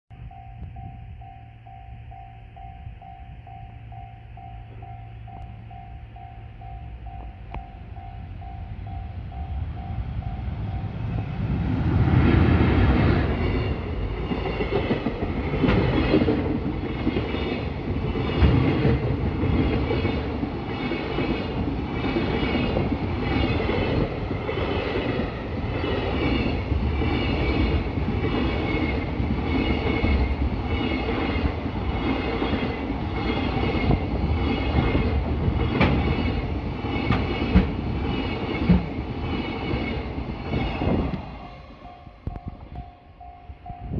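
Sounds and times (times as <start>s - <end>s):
electric locomotive passing: 0.1s - 43.9s
pulsing tone: 0.2s - 11.4s
wheels clickety-clack on rail joints: 8.5s - 43.9s.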